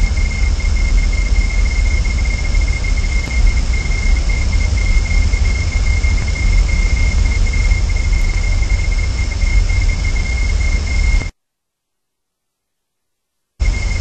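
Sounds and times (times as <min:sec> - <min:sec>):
low rumble: 0:00.0 - 0:11.3
constant high whine: 0:00.0 - 0:11.4, 0:13.6 - 0:14.0.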